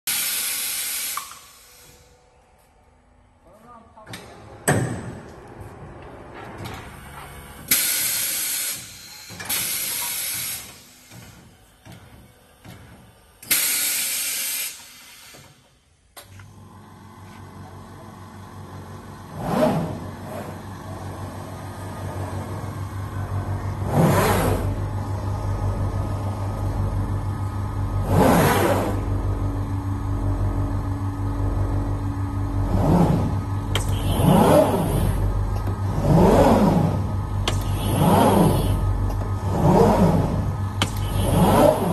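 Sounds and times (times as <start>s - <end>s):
loud air hisses: 0.1s - 2.1s
motor hum with surges: 16.4s - 41.9s.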